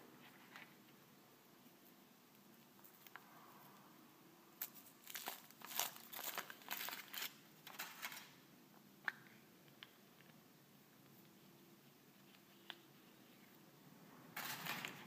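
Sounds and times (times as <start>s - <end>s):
foil wrapper crinkling: 4.6s - 8.2s.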